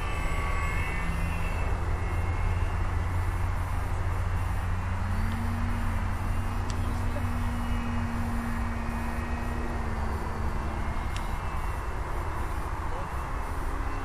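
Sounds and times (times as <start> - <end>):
model airplane motor drone: 0.0 - 14.0.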